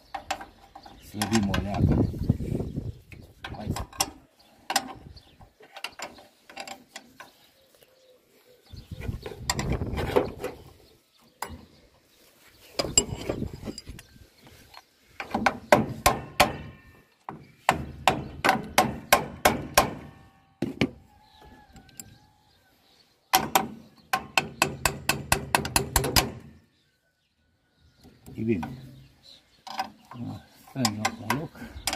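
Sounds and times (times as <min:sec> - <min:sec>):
dull metal clunks: 0:12.8 - 0:14.1, 0:15.2 - 0:21.1, 0:23.3 - 0:26.6.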